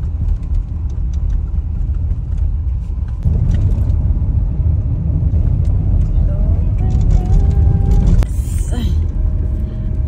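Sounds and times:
light rattles and clicks: 0:00.0 - 0:04.0, 0:05.4 - 0:09.2
road rumble and tyre noise: 0:00.0 - 0:10.0.

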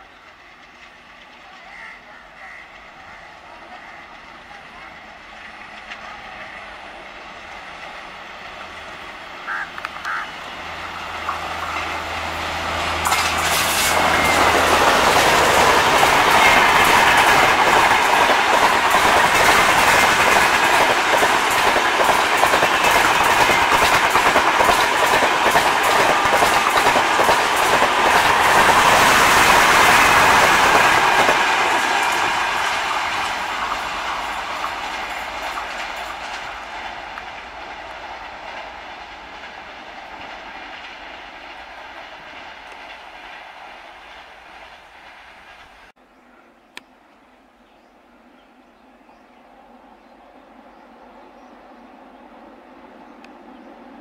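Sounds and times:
diesel locomotive engine hum: 0:00.0 - 0:54.0
train wheels clattering over rail joints: 0:12.9 - 0:45.9.

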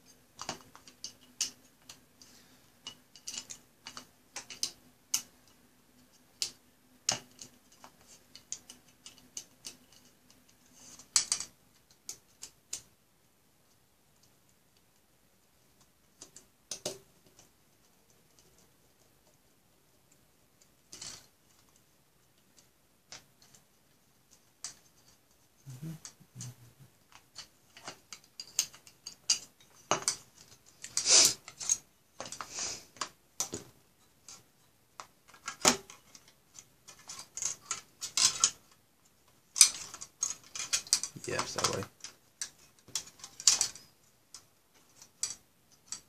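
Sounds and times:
plastic and metal parts clicking: 0:00.4 - 0:12.9, 0:35.0 - 0:38.8, 0:39.5 - 0:46.0.

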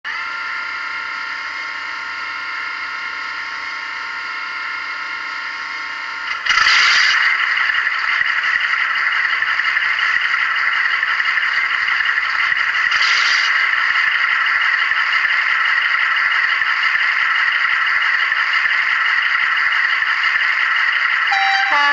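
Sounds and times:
diesel engines through small speaker: 0:16.8 - 0:21.9.

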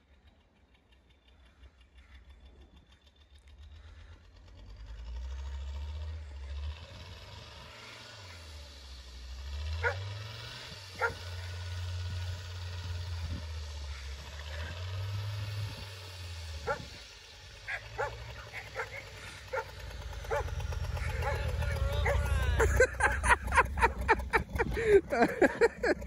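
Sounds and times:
vehicle engine rumbling: 0:00.0 - 0:26.0
dog barking: 0:09.8 - 0:10.0, 0:11.0 - 0:11.2, 0:16.6 - 0:16.9, 0:17.7 - 0:22.3.

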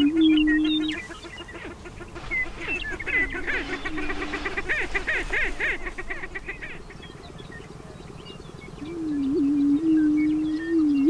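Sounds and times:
birds cackling and whooping: 0:00.0 - 0:11.0
low booming bird hoots: 0:02.1 - 0:07.4.

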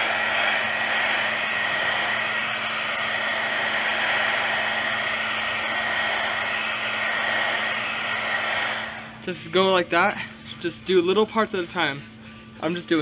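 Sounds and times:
heat gun blowing air: 0:00.0 - 0:09.2.

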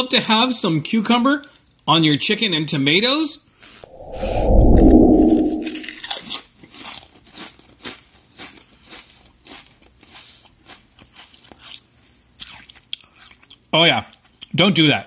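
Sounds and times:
loud muffled rumble: 0:03.9 - 0:06.0.

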